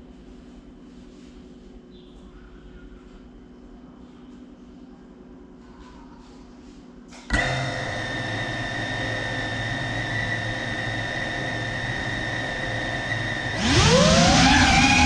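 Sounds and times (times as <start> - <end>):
drone motors whining: 7.3 - 15.0.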